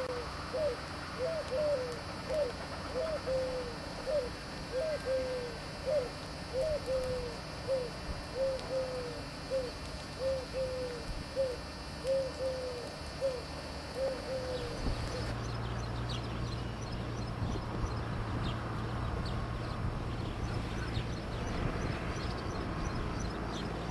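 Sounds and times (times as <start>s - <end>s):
dove cooing: 0.0s - 15.4s.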